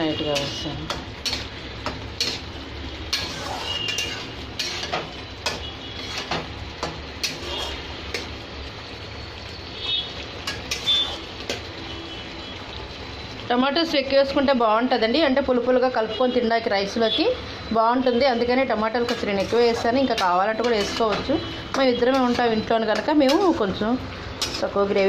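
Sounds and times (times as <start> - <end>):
metal spatula scraping metal pan: 0.1 - 8.4, 10.4 - 11.6, 18.4 - 25.0.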